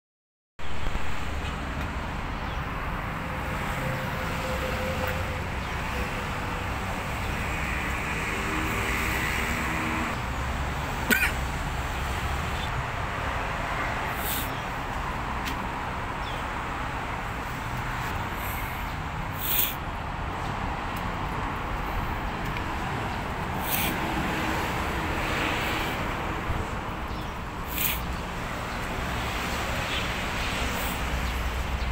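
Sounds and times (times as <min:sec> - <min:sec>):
traffic noise: 0:00.6 - 0:31.9
brief hiss: 0:19.4 - 0:19.8.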